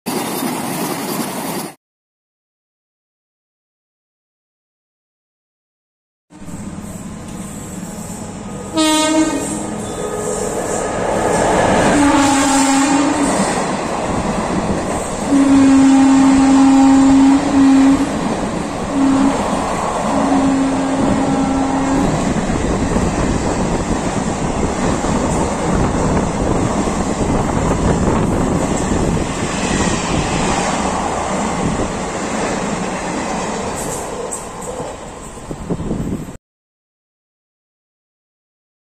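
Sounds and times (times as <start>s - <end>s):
train horn blasts: 8.4s - 11.0s, 11.7s - 13.6s, 15.2s - 18.3s, 18.9s - 22.4s
train wheels clickety-clack: 22.0s - 36.2s.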